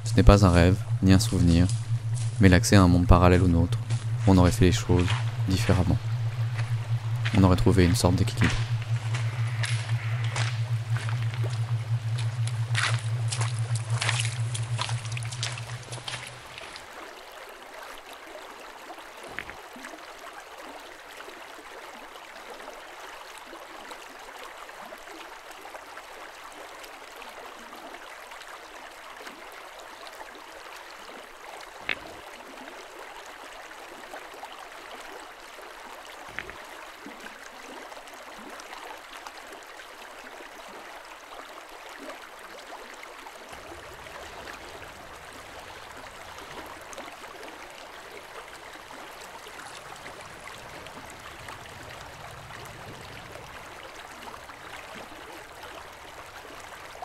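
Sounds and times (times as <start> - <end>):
river rippling over pebbles: 0.0 - 57.0.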